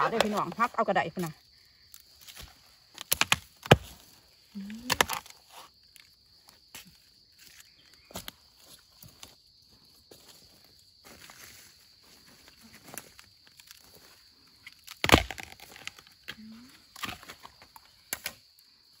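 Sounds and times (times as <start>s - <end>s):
high insect drone: 0.0s - 19.0s
knife chopping bamboo shoot: 15.0s - 15.6s.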